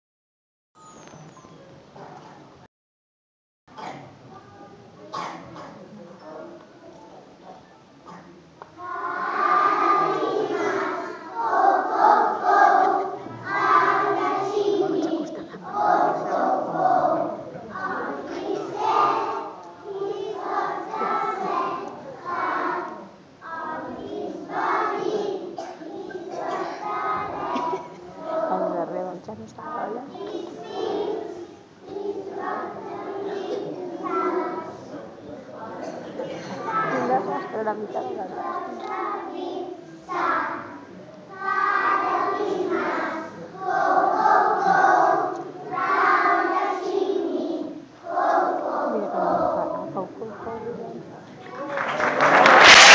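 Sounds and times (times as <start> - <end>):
children's choir singing: 8.8 - 29.0, 30.1 - 50.2.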